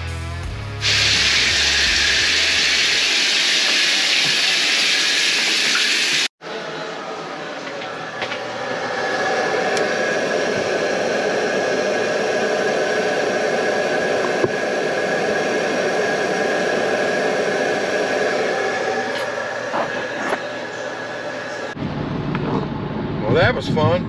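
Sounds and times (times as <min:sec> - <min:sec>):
water rushing through pipes: 0:00.8 - 0:06.3.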